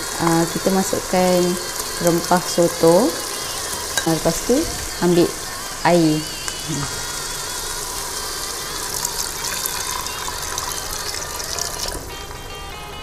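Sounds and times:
water pouring into a pot: 0:00.0 - 0:05.4, 0:07.4 - 0:12.1.

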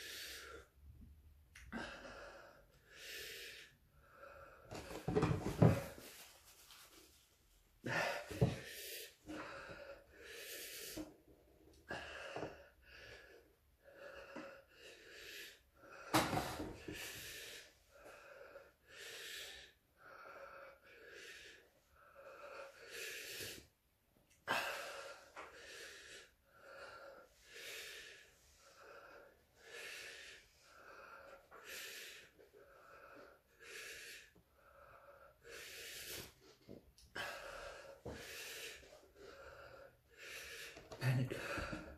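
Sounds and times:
man panting: 0:07.8 - 0:11.1, 0:37.1 - 0:41.9
man gasping: 0:40.5 - 0:41.9.

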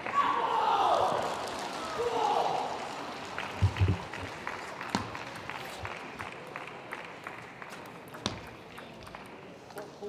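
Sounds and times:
crowd clapping: 0:01.1 - 0:08.5.

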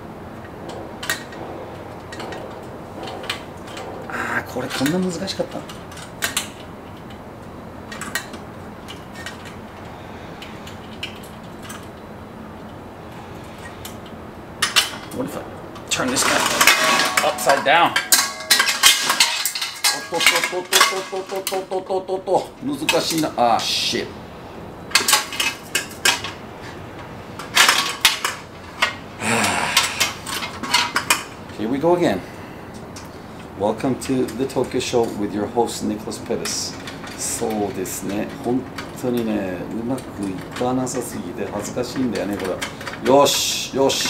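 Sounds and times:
low background noise: 0:00.0 - 0:44.0
metal grill parts clinking: 0:00.4 - 0:12.0, 0:13.4 - 0:23.4, 0:24.9 - 0:26.8, 0:27.4 - 0:31.9, 0:33.7 - 0:44.0.

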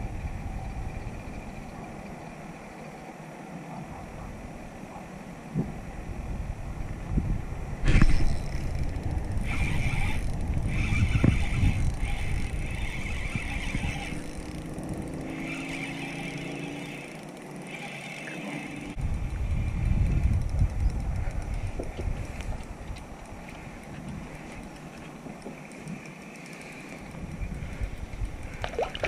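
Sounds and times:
spinning reel being cranked: 0:07.9 - 0:28.7
boat motor running: 0:08.0 - 0:29.0.

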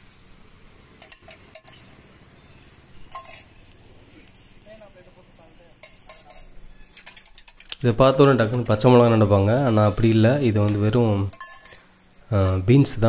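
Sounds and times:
batter sizzling on griddle: 0:00.0 - 0:13.0
spoon scraping griddle: 0:00.9 - 0:02.2, 0:03.0 - 0:04.4, 0:05.6 - 0:12.6.

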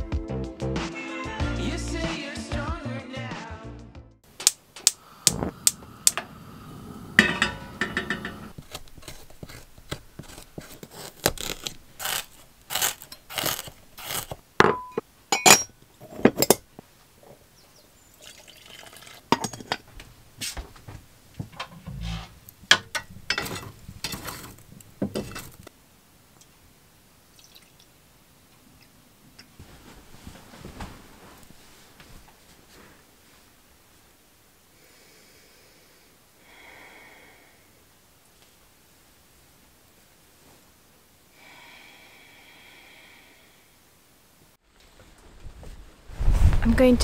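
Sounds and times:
ceramic teapot and cup clinking: 0:07.2 - 0:08.5, 0:14.6 - 0:16.6, 0:18.2 - 0:19.8
tea pouring into cup: 0:18.2 - 0:19.3, 0:27.3 - 0:27.9.

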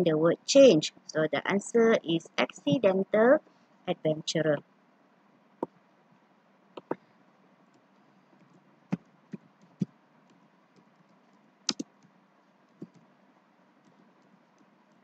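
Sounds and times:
keyboard key clicks: 0:11.7 - 0:11.9.

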